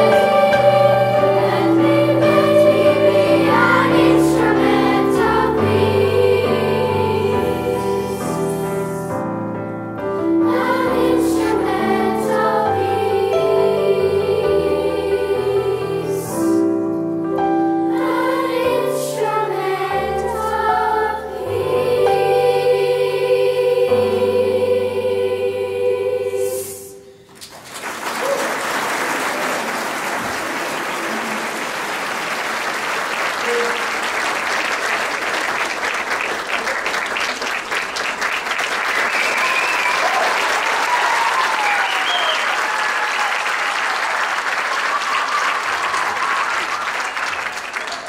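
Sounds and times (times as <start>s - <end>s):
children's choir holding a chord: 0.0s - 27.3s
audience applauding: 27.3s - 48.0s
people cheering: 27.5s - 48.0s.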